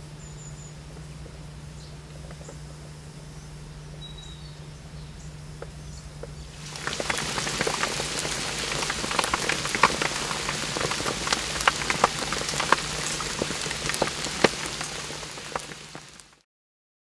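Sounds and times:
rain hissing on pond water: 0:06.4 - 0:16.4.

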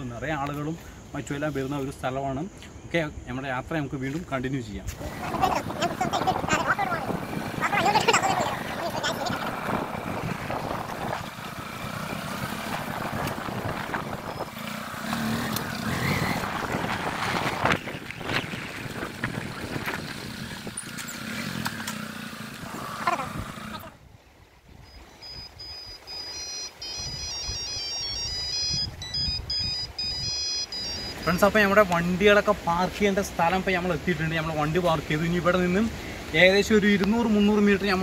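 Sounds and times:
wind noise: 0:04.8 - 0:21.0, 0:26.9 - 0:31.4
motorbike engine: 0:05.0 - 0:23.9
electronic chiming tune: 0:25.2 - 0:31.6.

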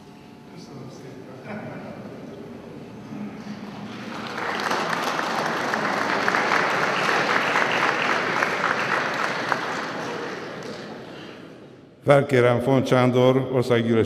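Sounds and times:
crowd applauding: 0:03.4 - 0:11.6.

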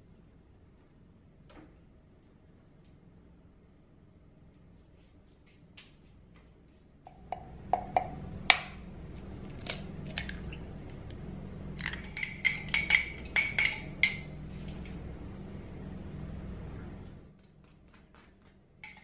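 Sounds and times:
steady low hum: 0:00.0 - 0:19.0
spoon knocking on mug: 0:07.1 - 0:08.8, 0:11.9 - 0:14.3
metal spoon clinking in ceramic mug: 0:11.8 - 0:14.3.

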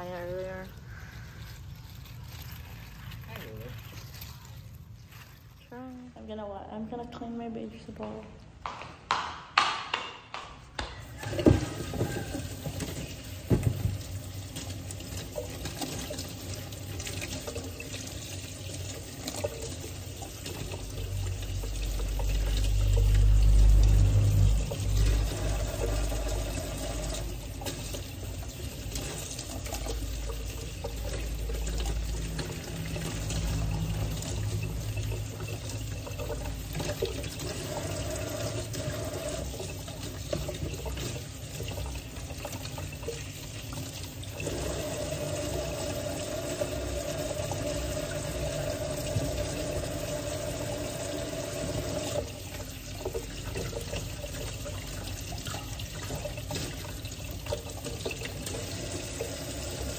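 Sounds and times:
tap running into steel sink: 0:08.6 - 0:14.7
vegetables knocking against steel bowl: 0:08.7 - 0:11.7
water splashing: 0:10.9 - 0:59.9.

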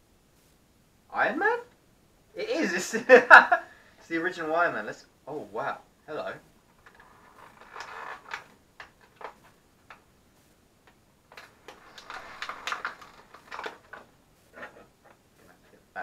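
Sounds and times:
cardboard box packing crinkling: 0:06.8 - 0:09.4, 0:11.3 - 0:14.1.

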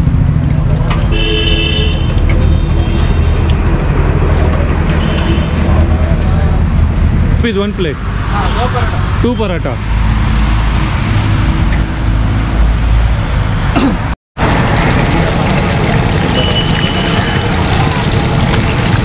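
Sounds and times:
road traffic rumble: 0:00.0 - 0:19.0
chicken deep-frying in oil: 0:14.4 - 0:19.0.

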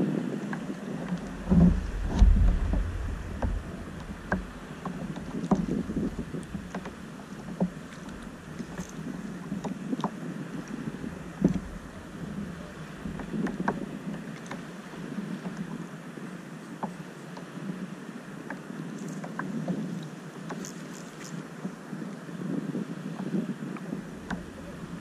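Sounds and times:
small waves lapping on a hull: 0:00.0 - 0:25.0
thump on a hull: 0:00.5 - 0:10.2, 0:24.0 - 0:25.0.

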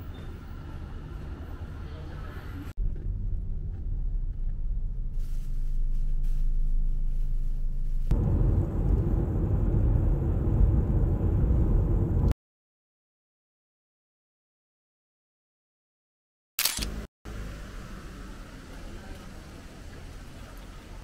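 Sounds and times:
car road noise: 0:00.0 - 0:12.3
car cabin rumble: 0:05.8 - 0:12.3.

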